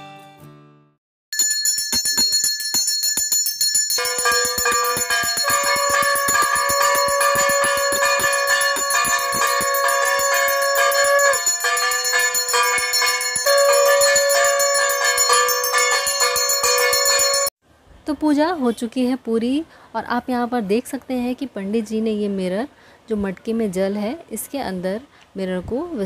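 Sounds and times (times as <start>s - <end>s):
hand bell ringing rapidly: 1.4s - 17.5s
long steady pitched note: 4.0s - 17.5s.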